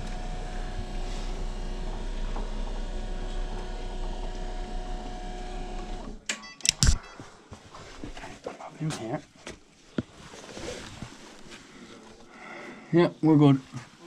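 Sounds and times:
stairlift motor whine: 0:00.0 - 0:06.2
sharp clicks and knocks: 0:05.8 - 0:07.2.

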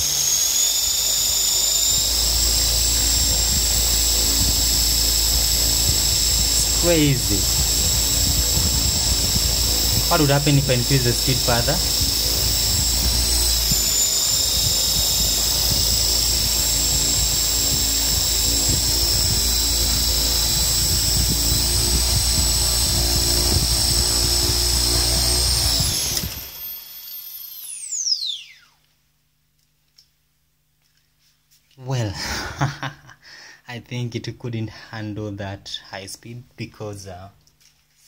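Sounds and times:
small motor high whine: 0:00.0 - 0:29.0
low gear rumble: 0:02.0 - 0:25.9.

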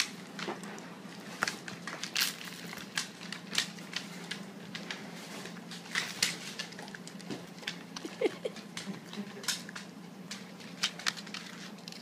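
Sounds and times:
dog crunching cereal: 0:00.0 - 0:12.0.

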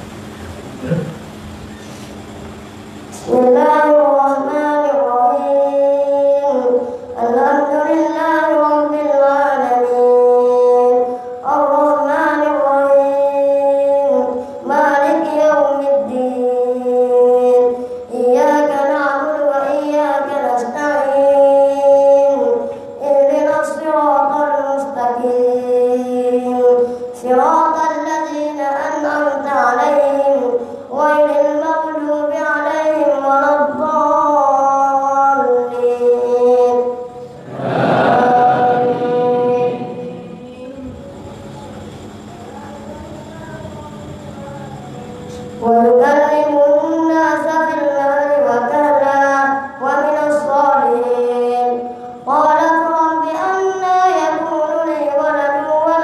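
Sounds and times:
boy reciting melodic chant: 0:03.1 - 0:56.0.

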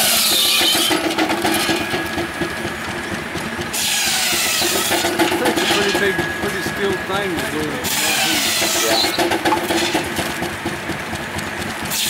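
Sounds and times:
saw cutting through wood: 0:00.0 - 0:12.0
circular saw humming: 0:01.9 - 0:10.6.

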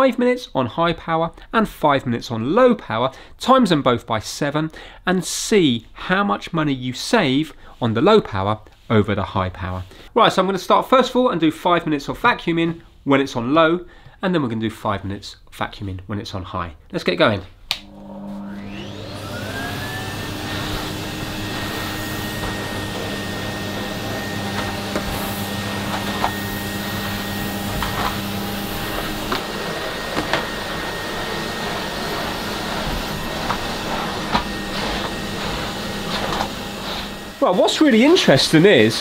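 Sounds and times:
vacuum cleaner motor whine: 0:17.8 - 0:39.0.

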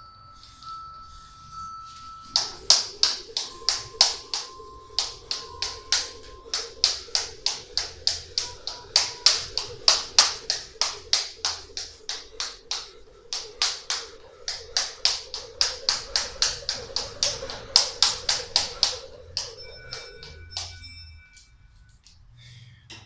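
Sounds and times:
jump rope slapping floor: 0:02.3 - 0:20.8.

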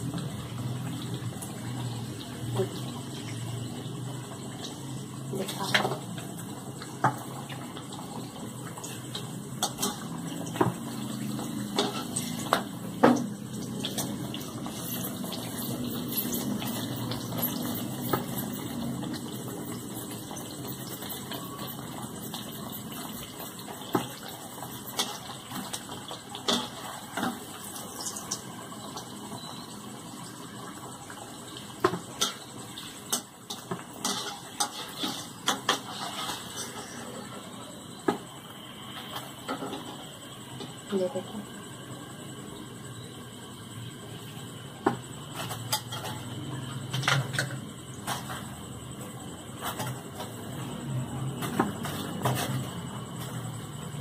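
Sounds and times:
food sizzling in hot oil: 0:00.0 - 0:54.0
metal spoon scraping pan: 0:33.1 - 0:37.2.

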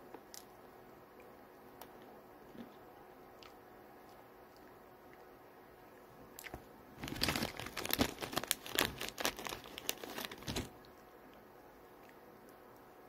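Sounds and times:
plastic snack bag crinkling: 0:06.5 - 0:10.8.

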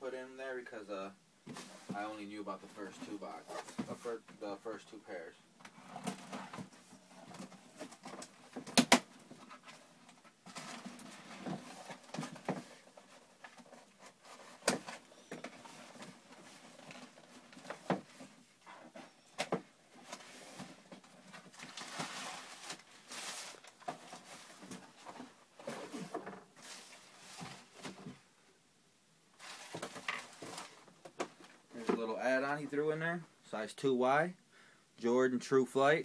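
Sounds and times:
cardboard rustling: 0:05.7 - 0:28.2, 0:29.4 - 0:32.2.

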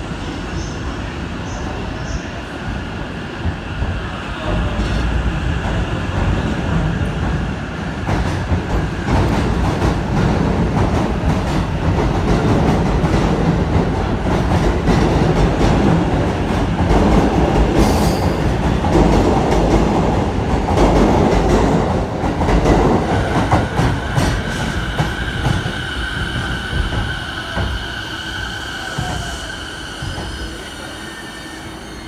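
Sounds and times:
high electric train whine: 0:00.0 - 0:32.0
train wheels on rail: 0:00.0 - 0:32.0.

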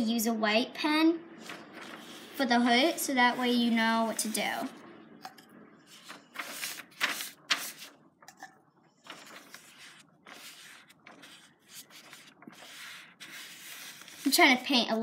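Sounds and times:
paintbrush brushing on paper: 0:01.4 - 0:04.7, 0:09.1 - 0:14.9.

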